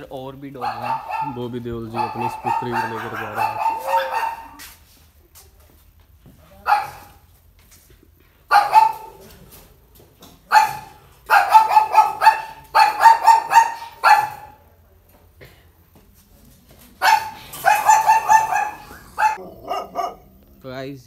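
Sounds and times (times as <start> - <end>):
dog barking: 0.6 - 4.7, 6.5 - 7.2, 8.5 - 9.5, 10.4 - 14.7, 17.0 - 20.4.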